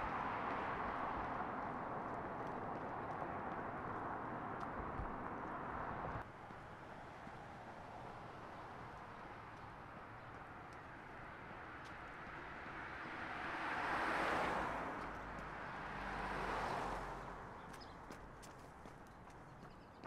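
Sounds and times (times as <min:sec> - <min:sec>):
vehicle passing: 0:00.0 - 0:19.6.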